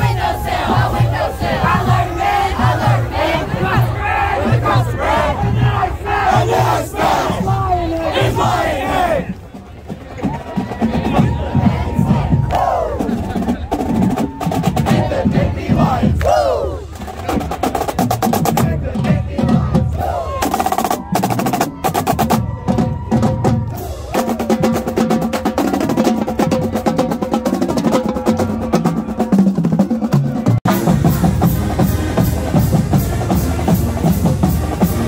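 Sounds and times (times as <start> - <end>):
people shouting: 0.0 - 9.4, 10.2 - 15.2, 15.8 - 16.8, 19.3 - 24.6
bass drum beats: 0.0 - 35.0
snare drum strokes and rolls: 5.4 - 35.0.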